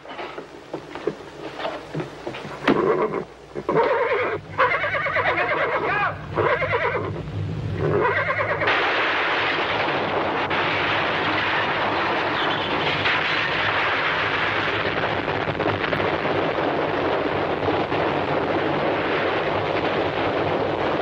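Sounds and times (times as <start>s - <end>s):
crumbling masonry din: 0.0s - 3.9s, 8.6s - 21.0s
horse whinnying: 2.6s - 7.2s, 7.8s - 8.7s.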